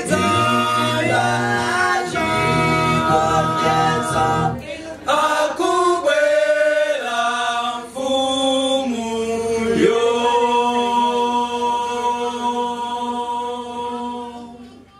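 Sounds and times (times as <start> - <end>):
male a cappella group singing: 0.0 - 14.9.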